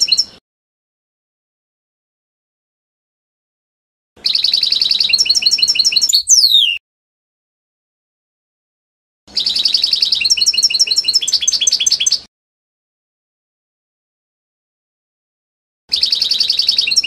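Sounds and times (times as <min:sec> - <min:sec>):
goldfinch twittering song: 0:00.0 - 0:00.4, 0:04.2 - 0:06.8, 0:09.3 - 0:12.3, 0:15.9 - 0:17.0.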